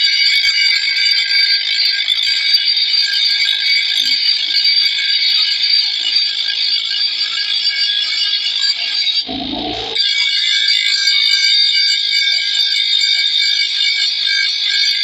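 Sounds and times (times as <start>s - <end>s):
grinder grinding steel: 9.3s - 10.0s.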